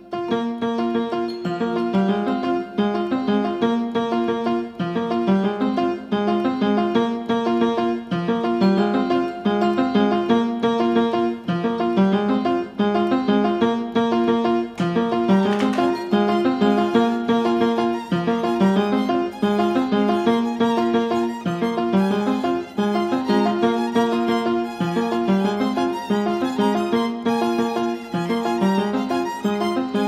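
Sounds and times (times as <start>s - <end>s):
keyboard repeating run of notes: 0.9s - 30.0s.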